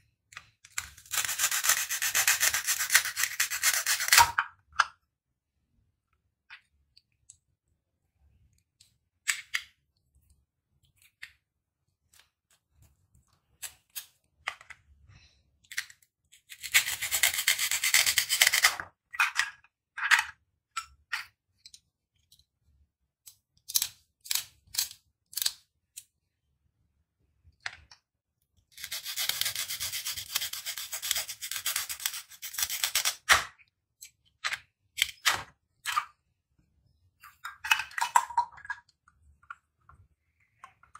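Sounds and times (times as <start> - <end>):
plastic toy pieces clicking: 23.3 - 26.0.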